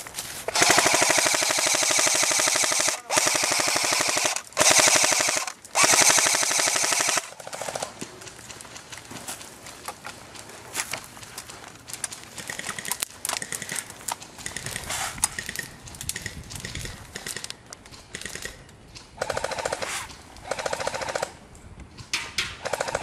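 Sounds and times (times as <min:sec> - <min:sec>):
airsoft rifle firing bursts: 0:00.5 - 0:07.9, 0:19.2 - 0:21.4, 0:22.6 - 0:23.0.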